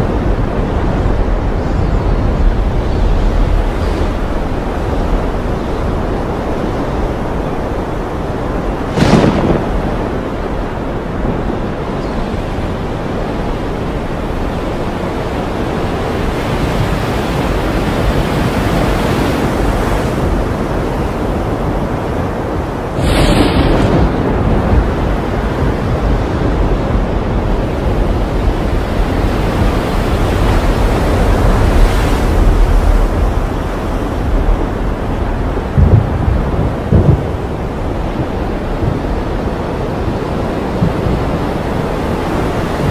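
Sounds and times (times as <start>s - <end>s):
wind and waves rushing: 0.0s - 42.9s
sudden loud crash: 23.0s - 24.4s.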